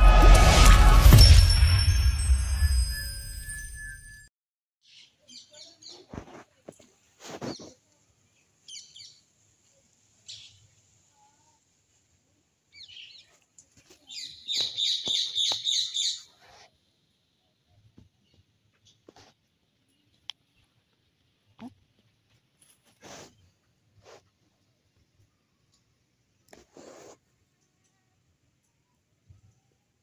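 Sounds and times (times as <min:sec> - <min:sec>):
small birds chirping: 0:04.8 - 0:06.2, 0:06.8 - 0:09.3, 0:12.7 - 0:16.6.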